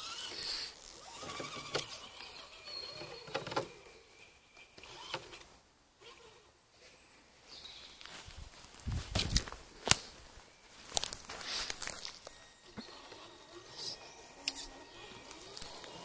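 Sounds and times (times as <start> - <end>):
small electric motor whining: 0.0 - 6.5, 12.2 - 16.0.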